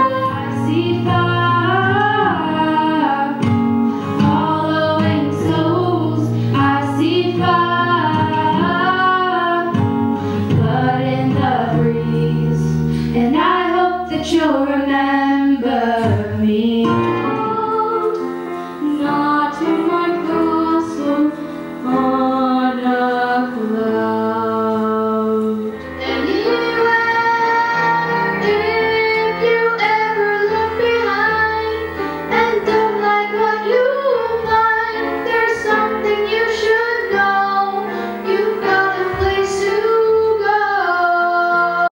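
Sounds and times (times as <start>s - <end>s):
girls singing duet: 0.0s - 41.9s
grand piano accompaniment: 0.0s - 41.9s
boy singing: 18.8s - 41.9s.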